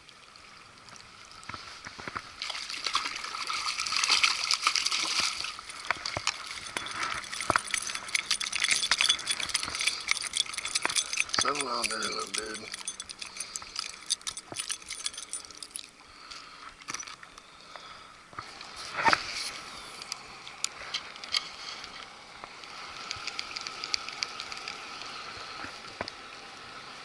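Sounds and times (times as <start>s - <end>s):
reel ticking rapidly: 6.2s - 15.9s
fishing reel clicks: 6.7s - 15.8s.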